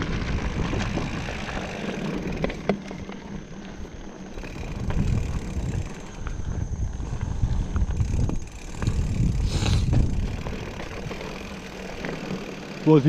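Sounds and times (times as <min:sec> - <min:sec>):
bike chain and frame rattles: 0:00.0 - 0:13.0
bike tyre rumble: 0:00.0 - 0:13.0
wind buffeting microphone: 0:00.0 - 0:13.0
short hiss: 0:09.4 - 0:09.9.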